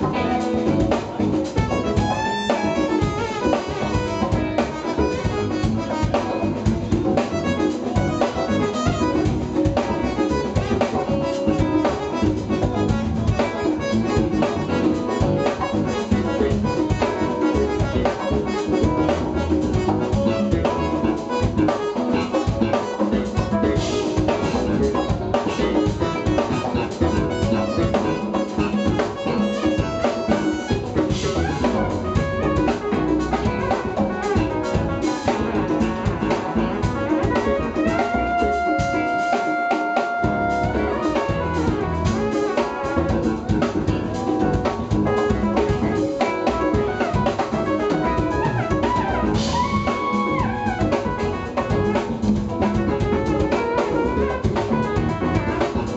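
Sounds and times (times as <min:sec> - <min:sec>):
drum kit: 0:00.0 - 0:55.9
electric bass: 0:00.0 - 0:55.9
jazz fusion band playing: 0:00.0 - 0:55.9
keyboards: 0:00.0 - 0:55.9.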